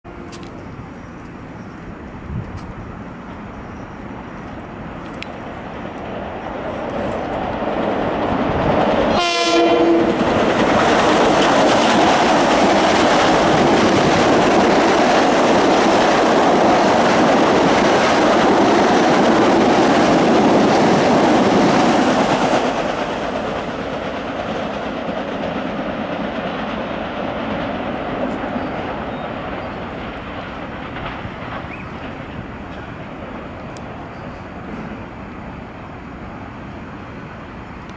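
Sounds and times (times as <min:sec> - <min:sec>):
train wheels on rails: 0:00.1 - 0:37.9
train horn blast: 0:09.1 - 0:10.2.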